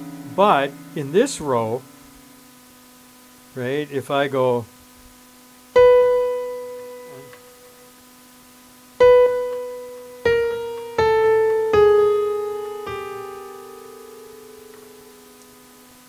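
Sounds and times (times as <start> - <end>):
piano notes from keyboard: 0.0 - 2.1, 5.8 - 7.9, 9.0 - 15.8
steady low hum: 0.0 - 16.0.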